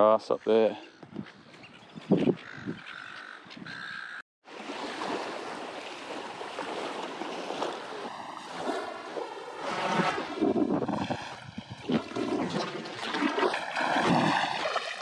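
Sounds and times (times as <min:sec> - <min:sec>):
crow-like bird calls: 0:00.8 - 0:04.2
gentle surf on shore: 0:04.4 - 0:15.0
wind rushing: 0:08.1 - 0:12.6.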